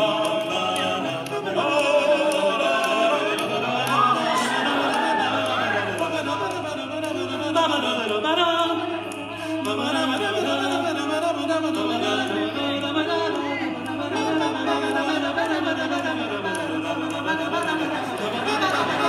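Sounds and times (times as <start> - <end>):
men singing in close harmony: 0.0 - 19.0.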